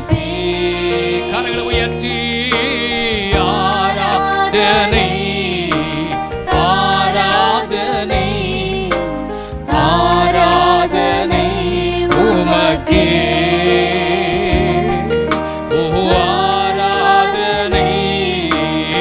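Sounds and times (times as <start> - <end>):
instrumental accompaniment: 0.0 - 19.0
person singing: 10.7 - 15.1, 15.7 - 19.0.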